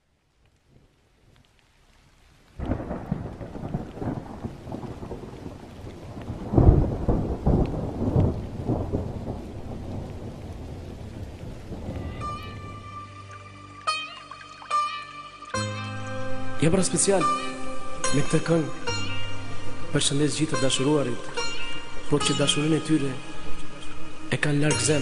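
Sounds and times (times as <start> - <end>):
steady rain: 0.0 - 25.0
rolling thunder: 2.6 - 13.0.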